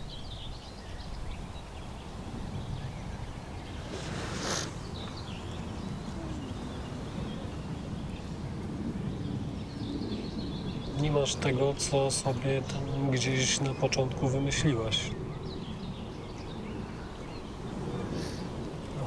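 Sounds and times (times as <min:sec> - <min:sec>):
faint bird chirps: 0:00.0 - 0:11.5
brief hissing swell: 0:03.8 - 0:05.2.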